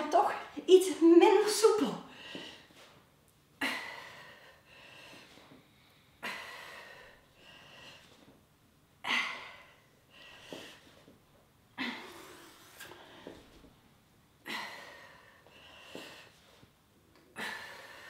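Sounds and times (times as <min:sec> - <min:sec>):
soft breaths in: 0:03.8 - 0:08.4, 0:14.6 - 0:16.7.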